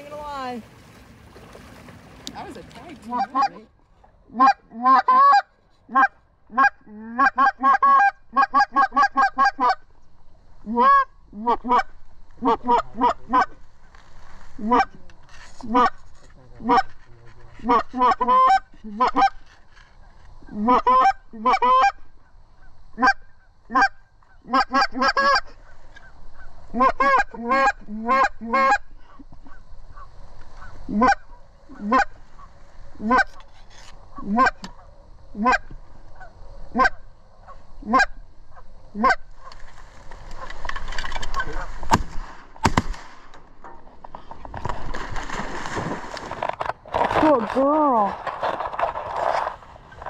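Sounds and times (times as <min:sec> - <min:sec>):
goose honking: 0:03.0 - 0:03.7, 0:04.3 - 0:09.8, 0:10.7 - 0:13.5, 0:17.6 - 0:19.4, 0:20.4 - 0:22.0, 0:23.0 - 0:33.5, 0:34.1 - 0:39.6.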